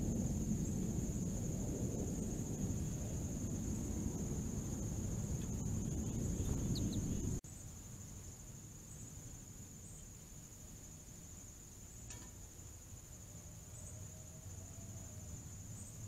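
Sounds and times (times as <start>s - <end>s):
low background rumble: 0.0s - 7.4s
insect chorus trilling: 0.0s - 16.0s.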